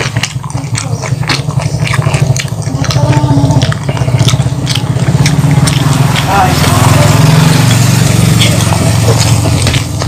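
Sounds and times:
chewing and crunching food: 0:00.0 - 0:10.0
mouth clicks: 0:00.0 - 0:10.0
steady low hum: 0:00.0 - 0:10.0.

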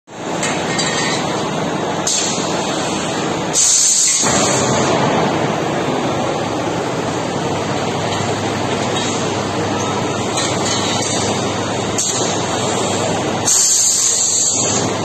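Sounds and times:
packing machinery running: 0:00.1 - 0:15.0
compressed air hiss: 0:02.1 - 0:04.7, 0:13.4 - 0:14.8.

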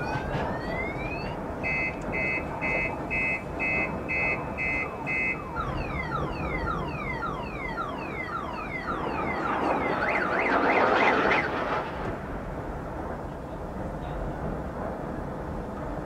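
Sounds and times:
car alarm: 0:00.0 - 0:11.6.

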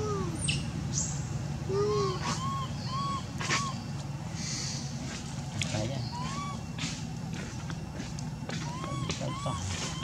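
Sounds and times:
low background hum: 0:00.0 - 0:10.0
animal calls rising and falling: 0:08.6 - 0:10.0.

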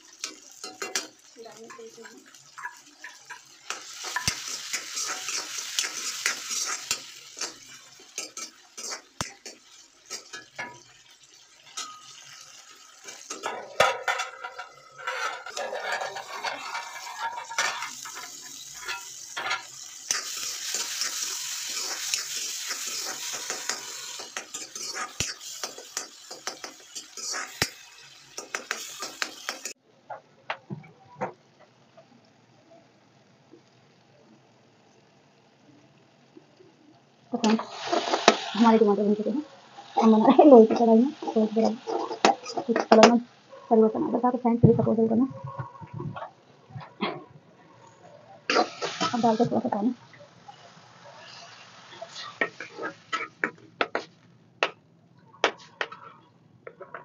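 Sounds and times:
vegetables sizzling in hot oil: 0:00.0 - 0:29.8, 0:37.2 - 0:45.2, 0:48.5 - 0:54.0
metal spoon scraping a pan: 0:00.1 - 0:29.8, 0:40.0 - 0:43.1, 0:48.5 - 0:49.8, 0:51.2 - 0:54.1
metal lid clattering: 0:13.0 - 0:20.3.

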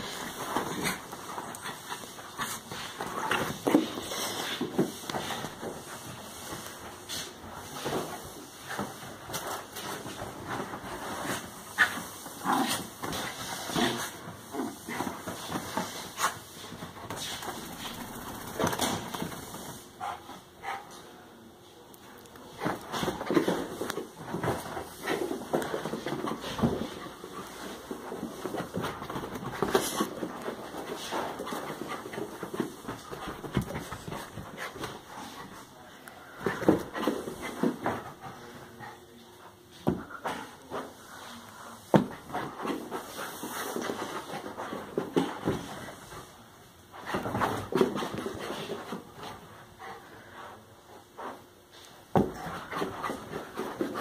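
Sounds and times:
knocks and rustles: 0:22.5 - 0:35.7.

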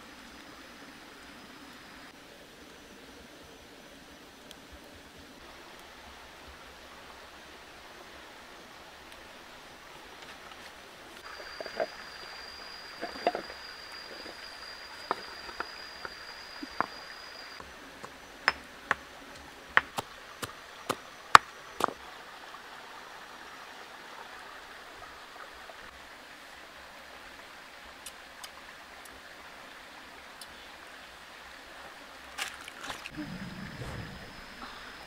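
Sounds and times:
stream rushing: 0:05.4 - 0:17.6, 0:32.2 - 0:35.0
thin high whine: 0:11.2 - 0:17.6, 0:33.2 - 0:35.0.

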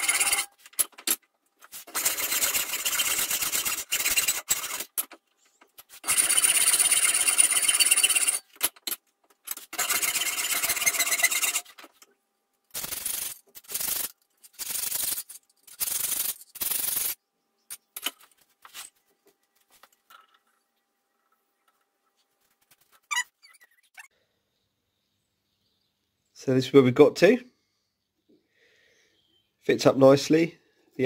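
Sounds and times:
hand file scraping metal: 0:00.0 - 0:00.5.

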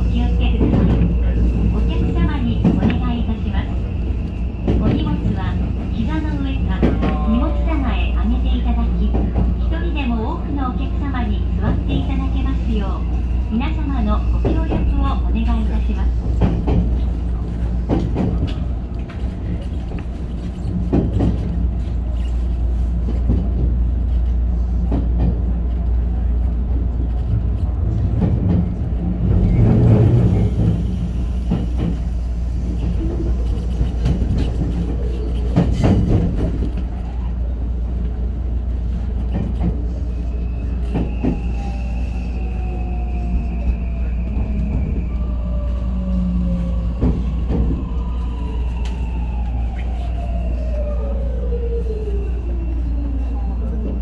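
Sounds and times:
train wheel rumble: 0:00.0 - 0:54.0
clacks over rail joints: 0:17.8 - 0:21.9.

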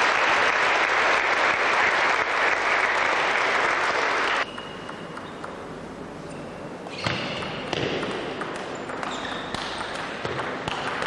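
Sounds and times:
spectators applauding: 0:00.0 - 0:04.4.

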